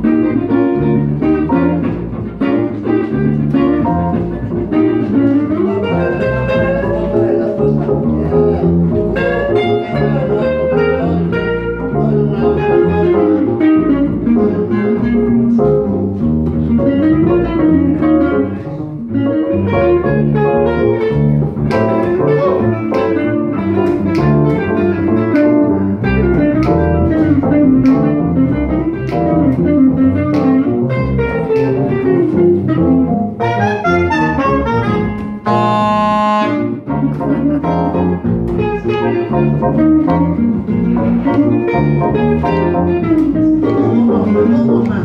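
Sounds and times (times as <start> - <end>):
double bass: 0.0 - 45.0
jazz guitar lead: 0.0 - 45.0
stage piano: 0.0 - 45.0.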